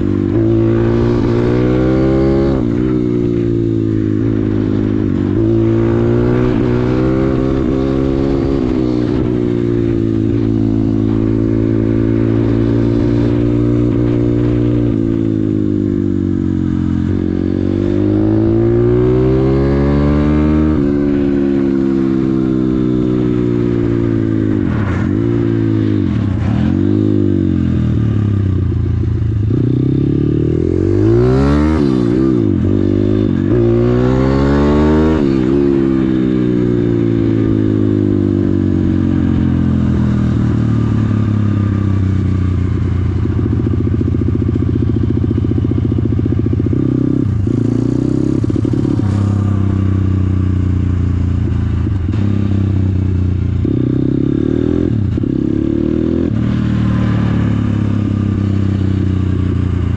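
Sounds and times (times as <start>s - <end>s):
motorbike engine revving: 0.0s - 59.9s.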